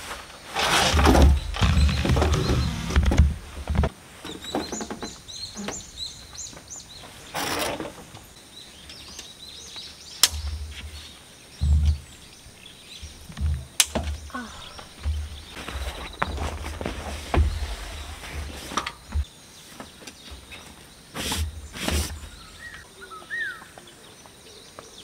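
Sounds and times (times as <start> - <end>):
birds chirping faintly: 0.3 - 25.0
dull thuds on wooden deck: 1.0 - 3.9, 11.6 - 19.2
fabric rustling: 14.4 - 19.2.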